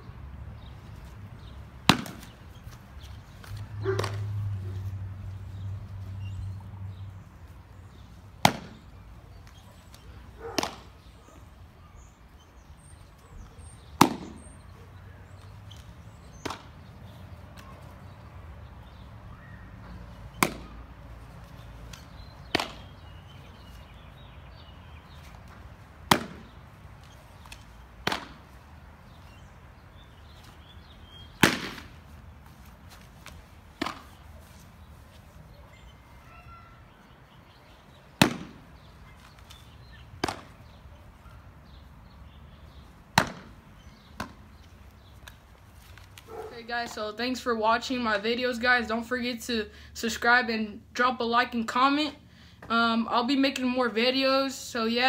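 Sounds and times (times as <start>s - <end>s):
baseball smacking into mitt: 1.4s - 2.4s, 3.0s - 4.4s, 8.4s - 8.9s, 9.5s - 11.1s, 13.9s - 14.6s, 16.3s - 16.9s, 20.3s - 20.8s, 21.9s - 23.0s, 25.4s - 28.6s, 31.4s - 32.1s, 32.9s - 34.3s, 38.1s - 39.6s, 40.2s - 40.8s, 42.7s - 45.4s.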